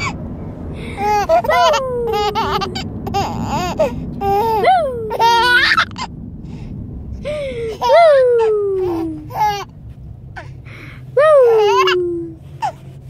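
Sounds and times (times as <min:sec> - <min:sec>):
car road rumble: 0:00.0 - 0:13.0
baby giggling and squealing: 0:00.8 - 0:06.1, 0:07.6 - 0:09.7, 0:11.2 - 0:12.8.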